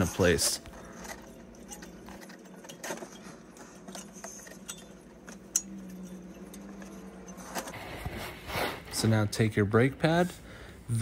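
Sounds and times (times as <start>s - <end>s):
metal clips clicking and rattling: 0.0s - 7.8s.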